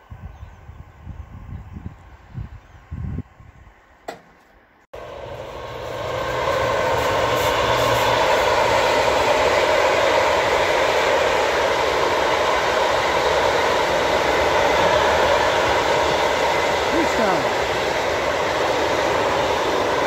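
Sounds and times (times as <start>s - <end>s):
freight train wheels rumbling: 5.0s - 20.0s.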